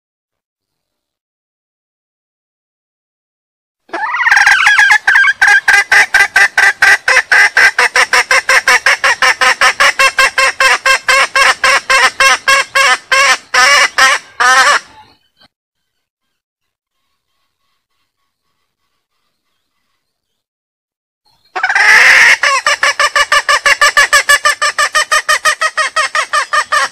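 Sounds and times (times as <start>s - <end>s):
junglefowl cackling call: 3.9s - 15.2s, 21.5s - 26.9s.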